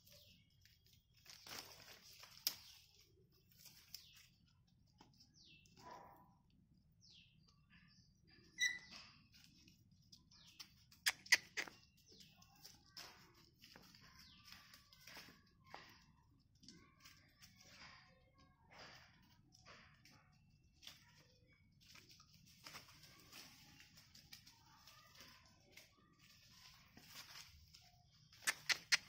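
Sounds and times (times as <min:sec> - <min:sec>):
rustling of dry leaves: 0:00.0 - 0:05.7, 0:11.6 - 0:18.2, 0:18.9 - 0:29.0
high squeak: 0:08.6 - 0:09.0
puppies chirping: 0:08.6 - 0:09.0, 0:10.5 - 0:12.2, 0:28.4 - 0:29.0
puppy paws clicking: 0:08.6 - 0:18.0, 0:21.8 - 0:29.0.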